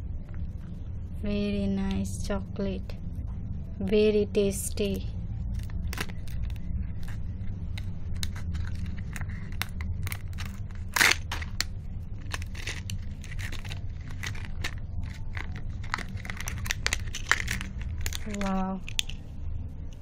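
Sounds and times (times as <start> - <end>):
candy wrappers crinkling and tearing: 5.5 - 19.2.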